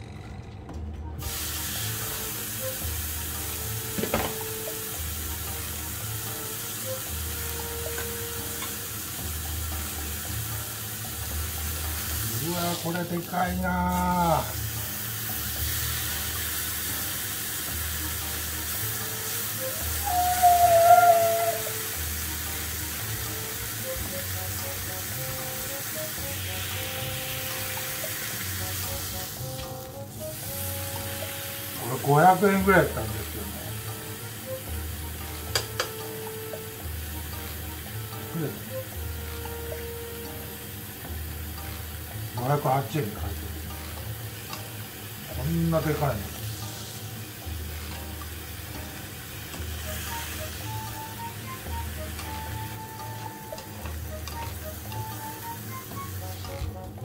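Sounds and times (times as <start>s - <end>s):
background music: 0.0s - 57.0s
beef sizzling on grill plate: 1.2s - 57.0s
brief high tone: 19.8s - 21.8s.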